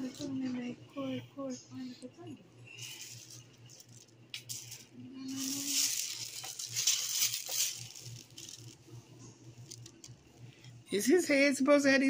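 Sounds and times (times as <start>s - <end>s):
small plastic pieces rattling: 3.0s - 8.8s, 9.6s - 10.2s.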